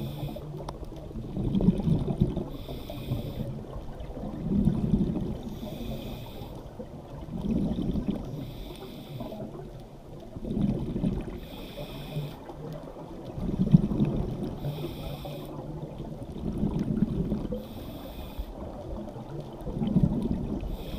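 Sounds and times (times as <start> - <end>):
regulator inhale hiss: 0.0 - 0.6, 2.5 - 3.7, 5.4 - 6.7, 8.2 - 9.6, 11.3 - 12.5, 14.5 - 15.6, 17.5 - 18.7, 20.6 - 20.9
exhaled bubbles rumbling: 0.0 - 20.9.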